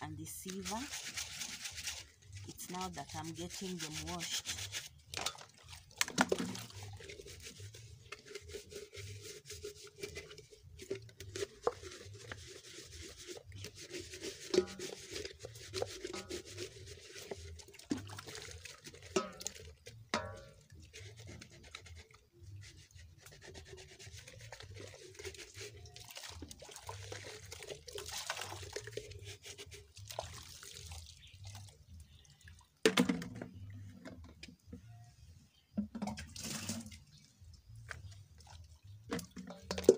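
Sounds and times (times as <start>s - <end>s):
water splashing and dripping: 0.0s - 34.2s, 35.9s - 39.9s
scrubbing and rubbing: 0.2s - 30.3s
items knocking against metal basin: 14.5s - 15.2s, 19.0s - 20.7s, 39.1s - 39.9s.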